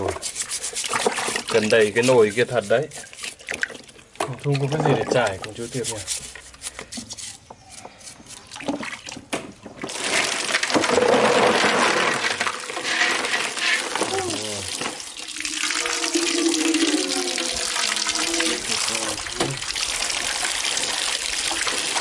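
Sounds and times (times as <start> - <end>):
running water gushing and splashing: 0.0 - 6.0, 9.8 - 22.0.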